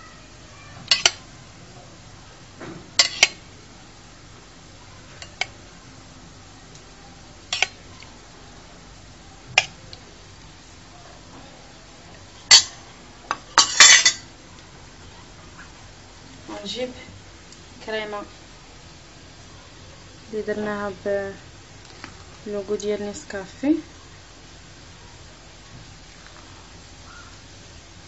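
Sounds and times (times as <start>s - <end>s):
metal spoon clinking on bowl: 0.9s - 1.2s, 3.0s - 3.4s, 13.6s - 14.2s.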